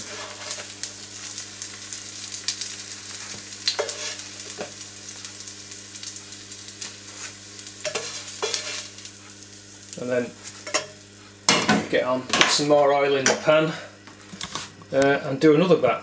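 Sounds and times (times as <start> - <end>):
spatula scraping a pan: 0.0 - 0.8, 3.2 - 4.7, 7.1 - 9.0
fritters sizzling in oil: 0.0 - 11.5.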